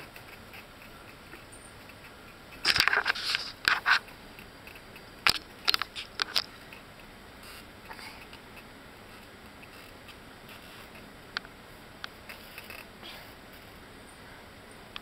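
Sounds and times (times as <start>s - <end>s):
fabric crackling and scraping: 2.6s - 4.0s.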